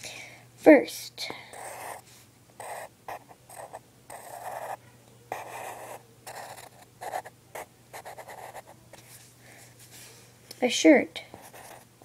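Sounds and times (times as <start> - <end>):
pencil scratching on paper: 1.5 - 2.0, 2.6 - 8.8, 11.3 - 11.9.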